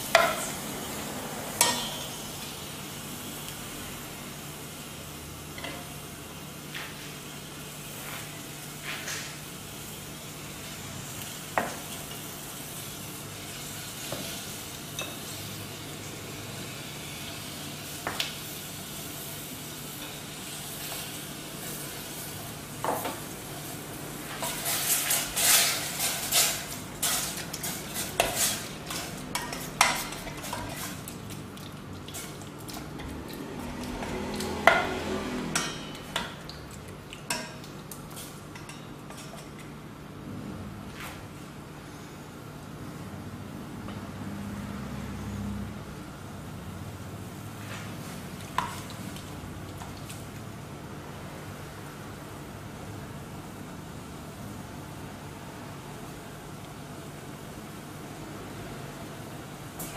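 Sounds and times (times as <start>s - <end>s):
meat sizzling in a pot: 0.0s - 38.8s
spatula scraping a pot: 24.4s - 31.1s.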